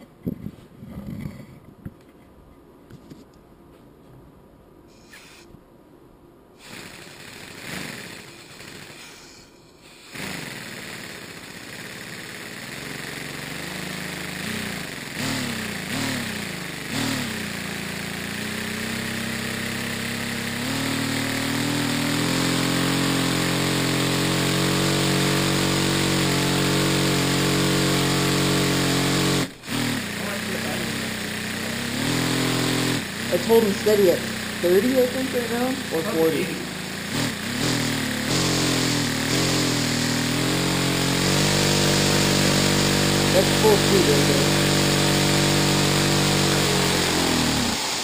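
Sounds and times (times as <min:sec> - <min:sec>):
compressed-air engine running: 0:06.6 - 0:48.0.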